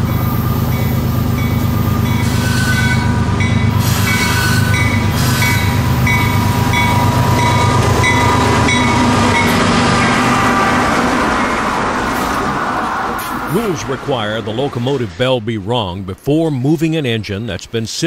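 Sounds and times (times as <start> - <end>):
locomotive bell ringing: 0.0 - 11.8
diesel locomotives rumbling: 0.0 - 17.8.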